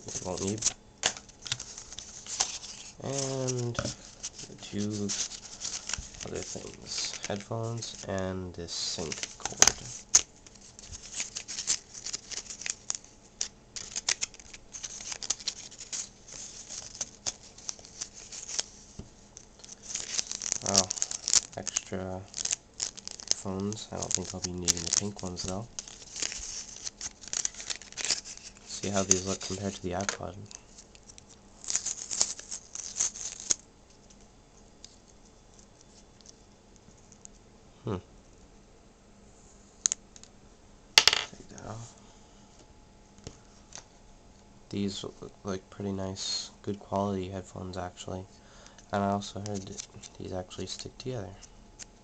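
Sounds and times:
packaging crackling: 0.0s - 34.2s.

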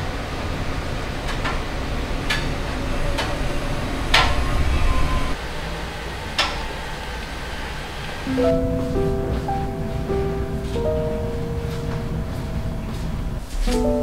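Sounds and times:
low hum: 8.3s - 13.7s.

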